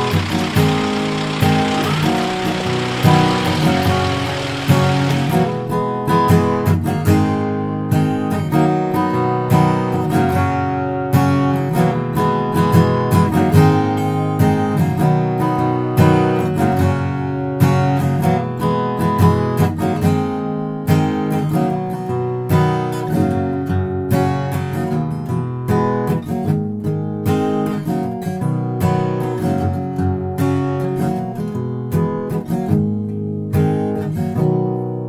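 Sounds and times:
acoustic guitar strumming: 0.0s - 15.9s.

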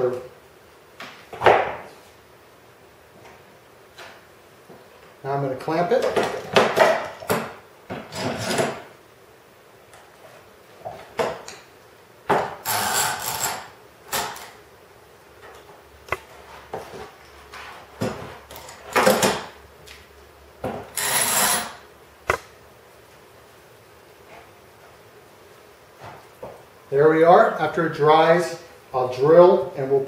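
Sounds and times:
clamps scraping and rattling: 8.1s - 8.8s, 20.9s - 21.8s.

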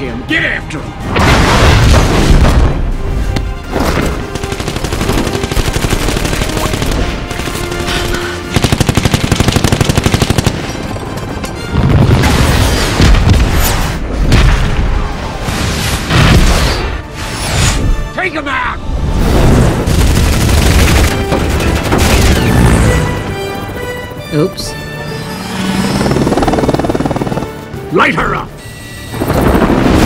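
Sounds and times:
film soundtrack music: 0.0s - 30.0s
heavy booming explosions: 1.0s - 7.4s, 11.8s - 17.0s, 19.1s - 23.3s
automatic gunfire: 4.2s - 10.6s.

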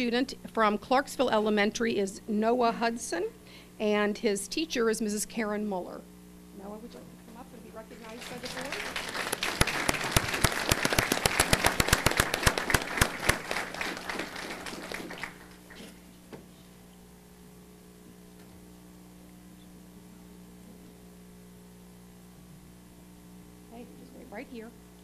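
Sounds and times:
steady low hum: 0.0s - 25.0s
audience applauding: 8.0s - 15.9s.

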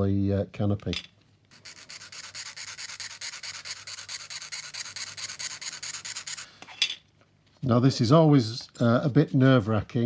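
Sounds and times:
sanding stick rubbing plastic: 1.5s - 6.4s.

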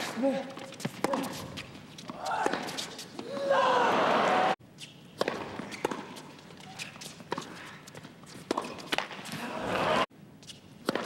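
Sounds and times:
tennis ball struck by racquets: 5.2s - 6.4s, 8.4s - 9.4s
crowd noise: 9.4s - 10.1s.

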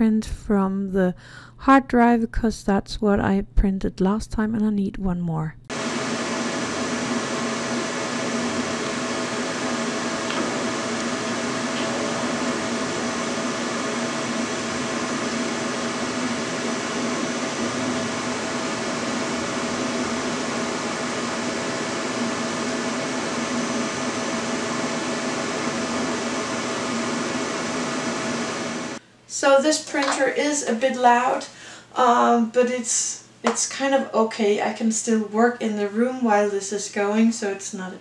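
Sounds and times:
printer fans and motors whirring: 5.7s - 29.0s.

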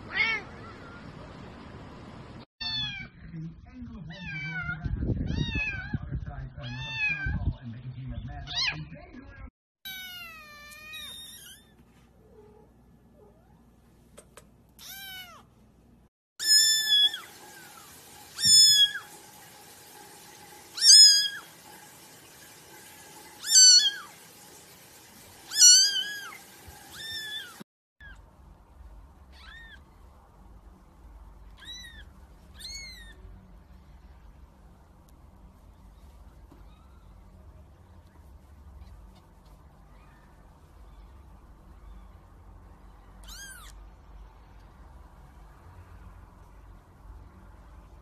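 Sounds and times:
kittens mewing: 14.8s - 15.5s, 29.3s - 29.8s, 31.6s - 33.2s.

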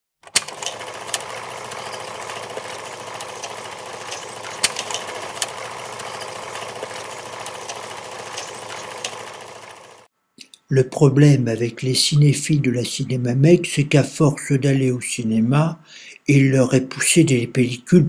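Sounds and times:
film projector clattering: 0.2s - 10.1s.

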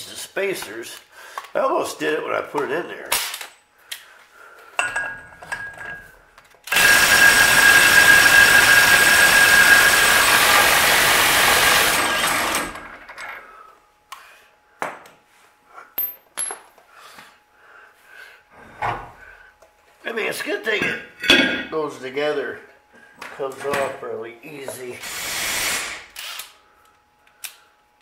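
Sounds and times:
power wrench spinning nut: 6.7s - 13.3s, 25.0s - 26.6s.

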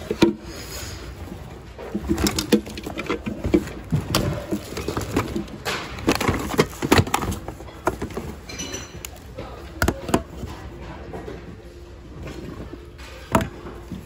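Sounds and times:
fabric and packaging rustling: 0.0s - 9.6s
plastic toys clattering: 0.0s - 14.0s.

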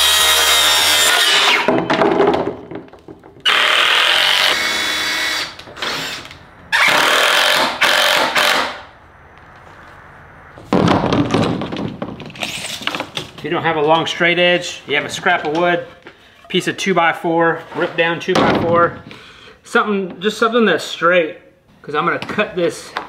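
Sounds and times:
circular saw cutting plastic: 0.0s - 1.7s
cordless drill driving screws: 3.5s - 8.8s.

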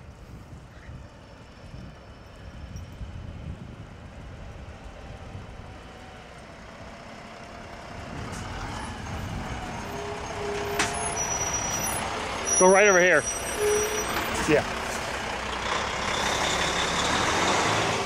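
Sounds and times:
truck engine and tyres: 0.0s - 18.0s
short squeal: 9.7s - 14.5s.

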